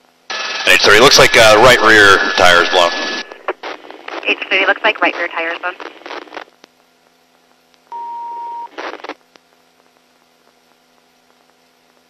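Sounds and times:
radio noise burst: 0:00.3 - 0:06.5, 0:08.4 - 0:09.2
police radio beep: 0:07.9 - 0:08.8.

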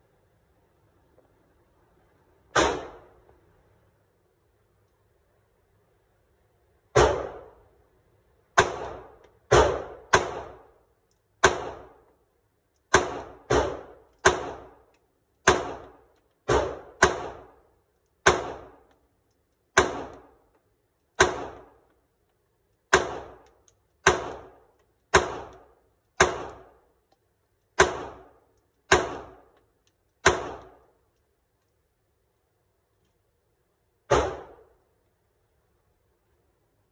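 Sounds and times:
pistol shots echoing indoors: 0:02.5 - 0:03.2, 0:06.9 - 0:07.6, 0:08.6 - 0:10.8, 0:11.4 - 0:12.1, 0:12.8 - 0:14.8, 0:15.4 - 0:17.6, 0:18.2 - 0:19.0, 0:19.7 - 0:20.4, 0:21.1 - 0:21.9, 0:22.9 - 0:27.0, 0:27.8 - 0:29.6, 0:30.2 - 0:31.0, 0:34.1 - 0:34.8.

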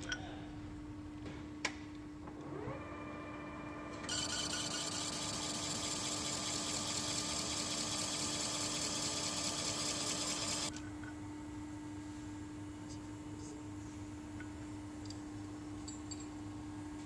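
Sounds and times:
lathe spindle whine: 0:02.6 - 0:10.7.

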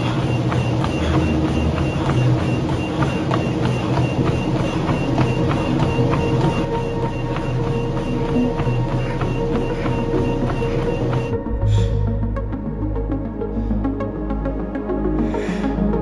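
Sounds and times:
footfalls on treadmill: 0:00.0 - 0:11.4
treadmill motor rumble: 0:00.0 - 0:11.4.

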